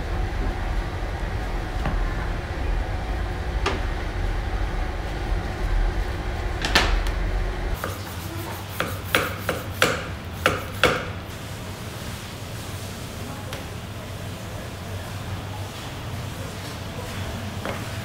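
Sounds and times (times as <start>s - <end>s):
steady low hum: 0.0s - 12.7s.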